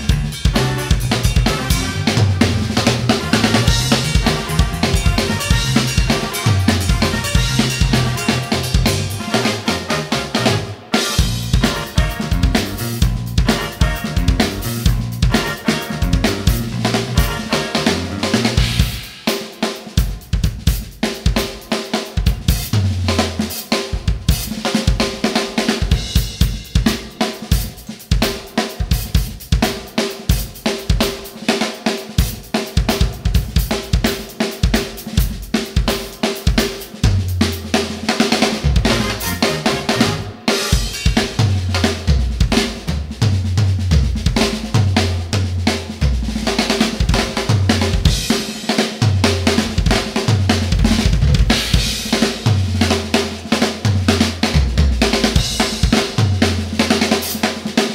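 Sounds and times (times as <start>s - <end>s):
bass line: 0.0s - 19.1s, 37.0s - 40.4s, 41.1s - 48.4s, 49.0s - 57.1s
drum kit funk groove: 0.0s - 57.9s.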